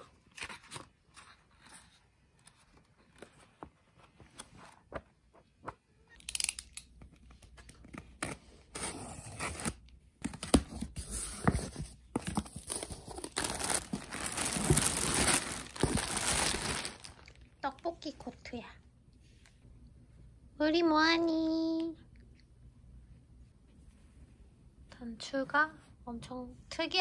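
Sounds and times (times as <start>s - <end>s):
books being handled: 7.7s - 17.3s
cardboard flaps rustling: 10.4s - 17.2s
plastic bag crinkling: 12.6s - 17.5s.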